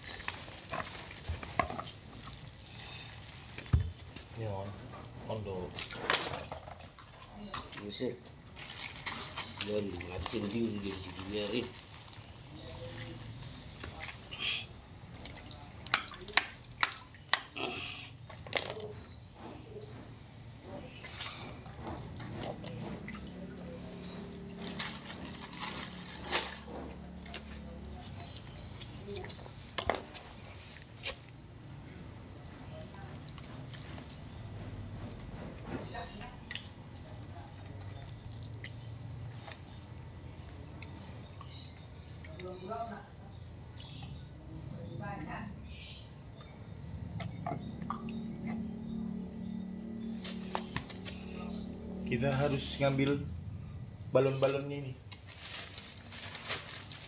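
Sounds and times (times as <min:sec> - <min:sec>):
water splashing and dripping: 0:00.0 - 0:04.0, 0:05.3 - 0:14.4, 0:15.0 - 0:17.6
low steady hum: 0:00.0 - 0:57.0.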